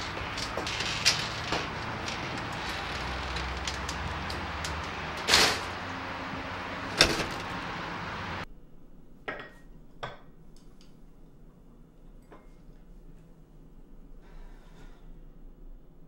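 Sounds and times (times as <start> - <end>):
door clacking against frame: 0.0 - 8.1
screen door swish: 0.0 - 8.4
steady outdoor hum: 0.0 - 9.1.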